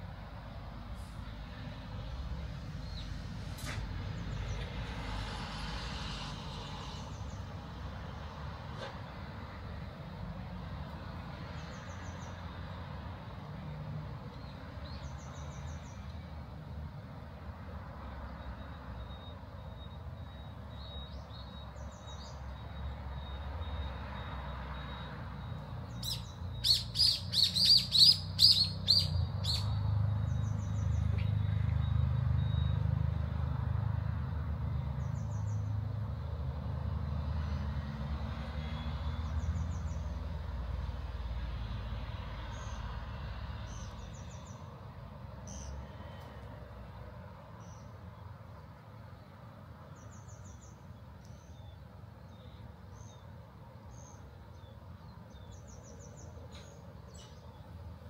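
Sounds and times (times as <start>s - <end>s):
low traffic rumble: 0.0s - 58.0s
bird singing high notes: 26.0s - 29.8s.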